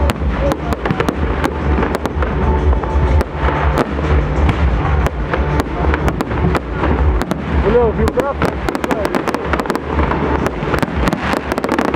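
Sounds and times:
fireworks bangs and crackles: 0.0s - 11.9s
music playing: 0.0s - 11.9s.

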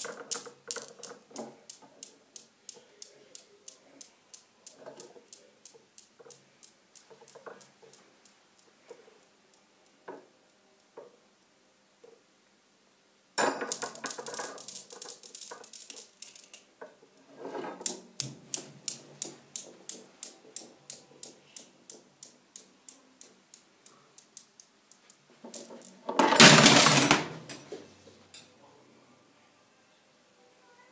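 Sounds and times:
steel balls clacking: 0.0s - 8.7s, 13.4s - 16.7s.

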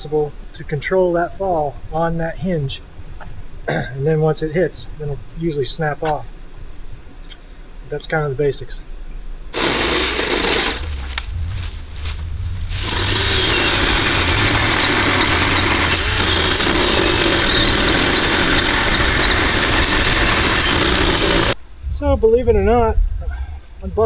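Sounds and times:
electric chainsaw cutting log: 9.5s - 11.3s, 12.7s - 21.6s.

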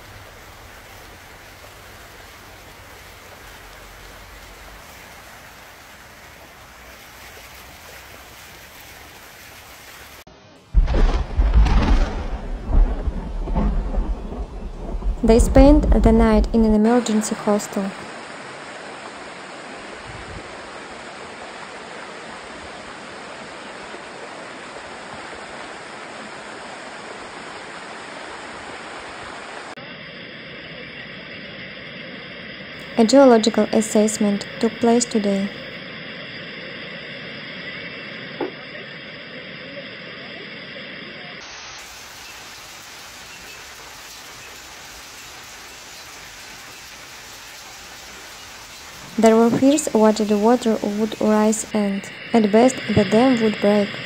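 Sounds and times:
floodwater rushing: 0.0s - 29.8s, 37.8s - 54.0s
hailstones falling on paving: 10.8s - 16.1s.

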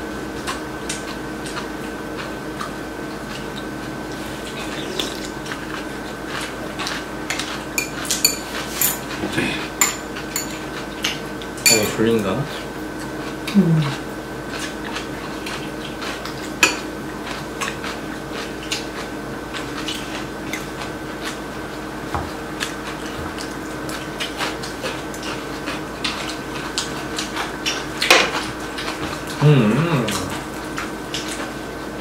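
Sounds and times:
utensils clinking on ceramic bowls: 7.8s - 9.2s, 9.8s - 10.7s, 11.6s - 12.2s.

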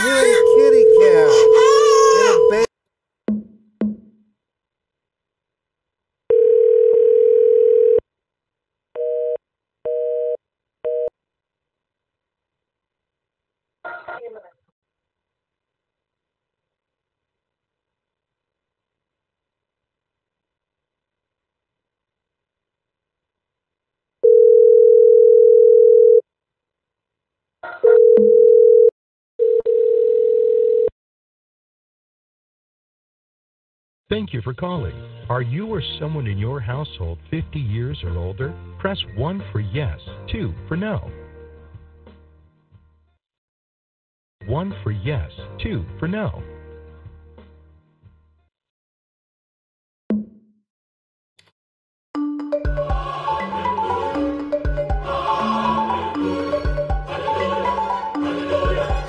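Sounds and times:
steady telephone dial tone: 6.3s - 8.0s, 24.2s - 26.2s, 27.9s - 30.9s.

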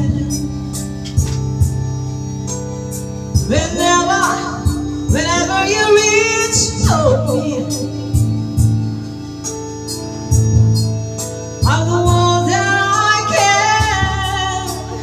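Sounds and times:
woman singing into microphone: 0.0s - 1.4s, 3.4s - 8.6s, 11.6s - 15.0s
backing track with steady beat: 0.0s - 15.0s.

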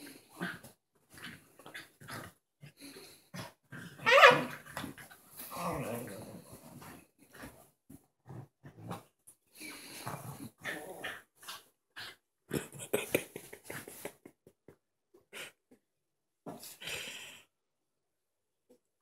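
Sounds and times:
small dogs play growling: 0.0s - 14.2s.

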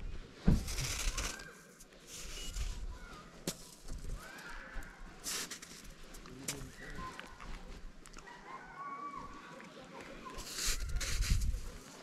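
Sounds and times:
snow crunching and scraping: 0.1s - 7.9s, 10.4s - 12.0s.

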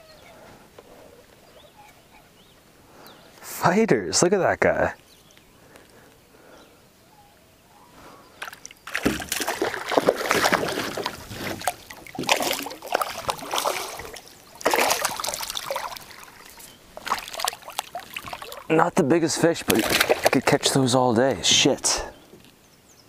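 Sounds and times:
fish splashing at water surface: 8.4s - 18.7s, 19.6s - 20.6s.

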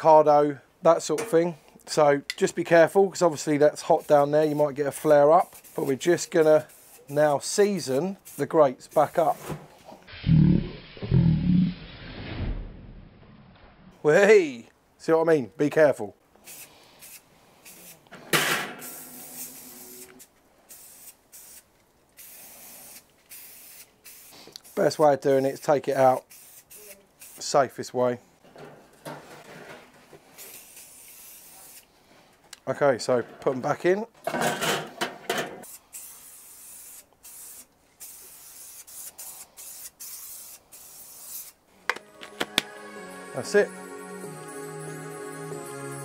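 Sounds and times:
aerosol spray can hissing: 4.0s - 7.2s, 16.4s - 18.0s, 18.8s - 25.0s, 25.9s - 27.5s, 30.4s - 31.9s, 35.6s - 42.7s.

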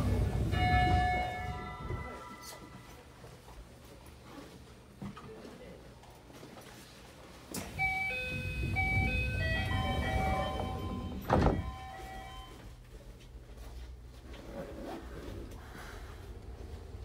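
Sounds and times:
train doors shutting: 0.0s - 2.8s, 7.5s - 12.6s
chime melody: 7.8s - 12.6s.

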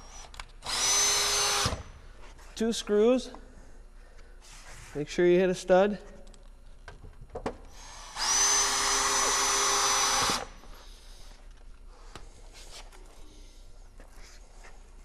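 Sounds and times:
cordless drill whining: 0.1s - 1.9s, 7.8s - 10.7s.

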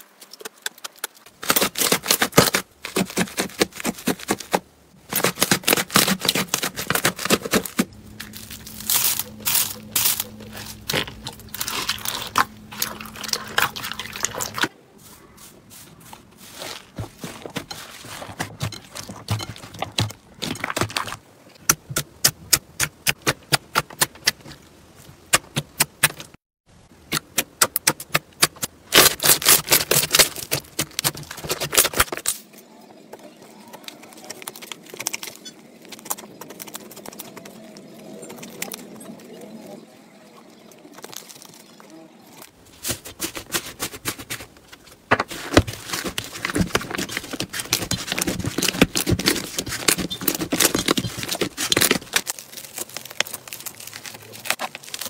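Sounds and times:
foam slime crackling: 0.6s - 14.7s, 45.3s - 55.0s
thick slime squishing: 5.2s - 14.7s, 45.3s - 55.0s.

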